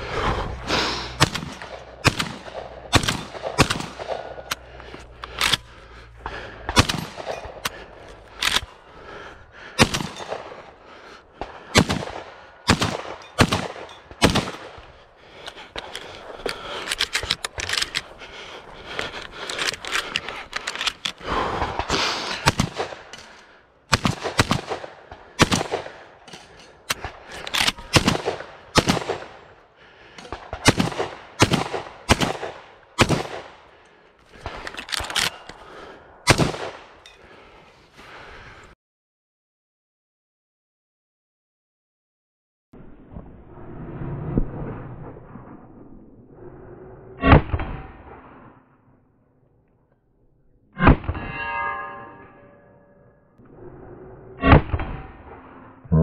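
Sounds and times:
shotgun firing: 1.2 - 4.5, 6.7 - 7.6, 11.7 - 14.8, 23.9 - 26.0, 27.8 - 29.4, 30.4 - 33.5, 36.3 - 36.8.

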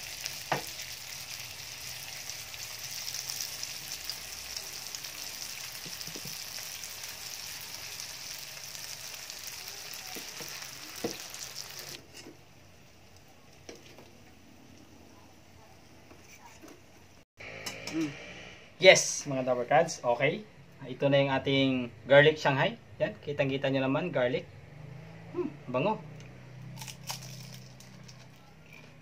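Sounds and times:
spring rolls sizzling in oil: 0.0 - 14.8.

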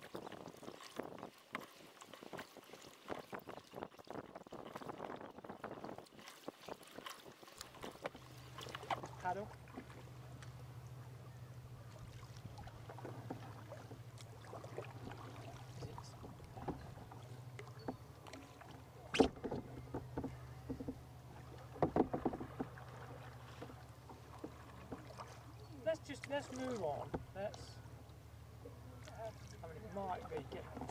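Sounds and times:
paddle splashing water: 0.0 - 30.9
steady low hum: 8.2 - 30.9
knocks against kayak hull: 19.1 - 21.0, 21.7 - 22.9.

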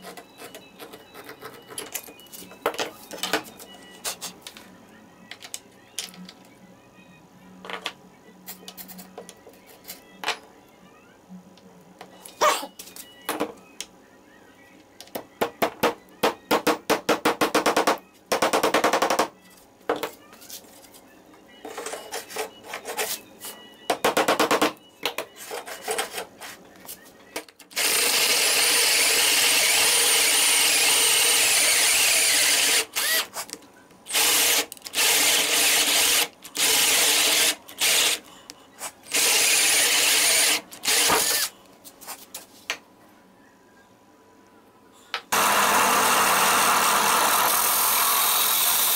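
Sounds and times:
cordless drill cutting with hole saw: 27.7 - 33.3, 34.1 - 38.2, 39.1 - 41.5, 45.3 - 48.9.

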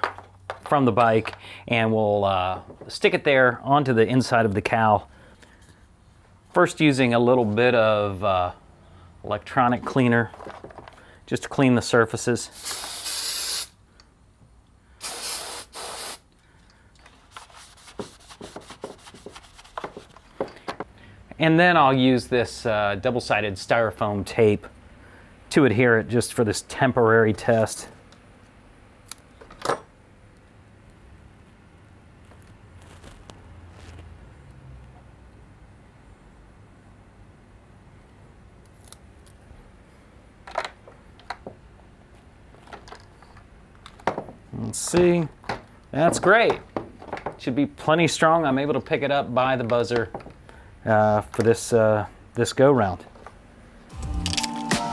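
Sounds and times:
aerosol spray hissing: 12.5 - 13.8, 15.0 - 16.2
cloth rubbing a surface: 17.2 - 20.2, 32.8 - 34.2.

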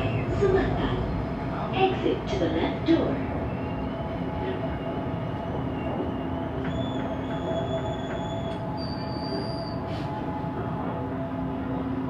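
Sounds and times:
metro train rumble: 0.0 - 12.0
high squealing tones: 3.5 - 9.9.

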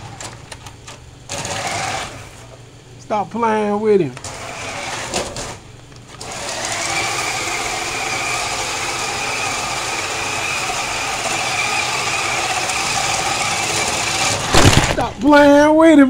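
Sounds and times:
toy car electric motor whine: 1.3 - 2.3, 4.2 - 5.5, 6.2 - 14.8.

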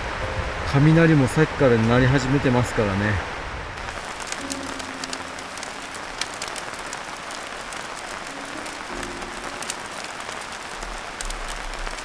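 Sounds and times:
heavy rain: 0.0 - 12.0
wood fire crackling: 3.8 - 12.0.

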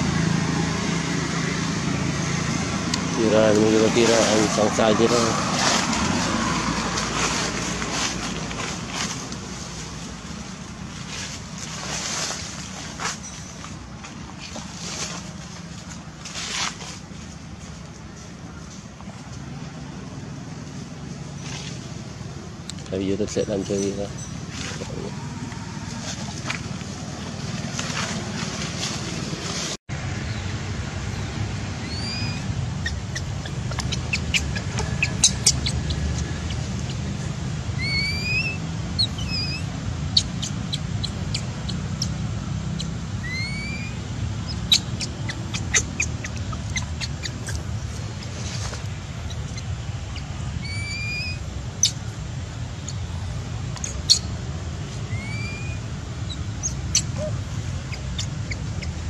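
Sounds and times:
low steady rumble: 0.0 - 59.0
infant monkey squeaking: 31.8 - 42.2, 42.8 - 48.1, 49.2 - 52.1, 52.8 - 54.4, 55.0 - 59.0.

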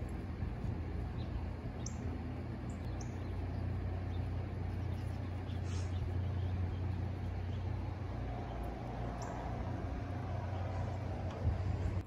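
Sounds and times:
low outdoor rumble: 0.0 - 12.0
high bird chirps: 1.1 - 7.8.

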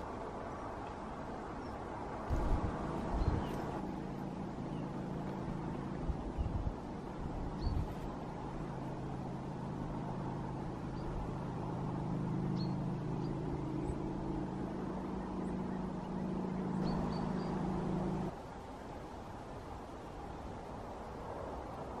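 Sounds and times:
distant engine drone: 0.0 - 22.0
faint bird chirps: 12.4 - 18.3.

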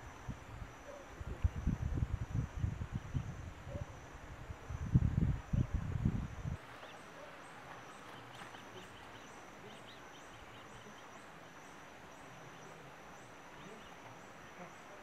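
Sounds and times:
birds chirping: 6.6 - 15.0.

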